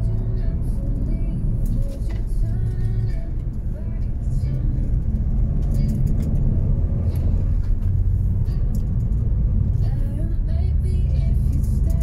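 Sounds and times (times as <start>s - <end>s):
car engine and tyre rumble: 0.0s - 12.0s.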